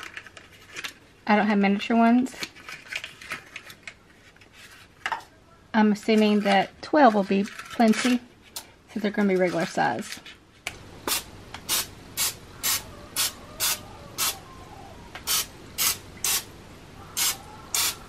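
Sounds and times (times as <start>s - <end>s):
cooking spray hissing squirts: 11.1s - 14.4s, 15.3s - 16.5s, 17.2s - 18.0s.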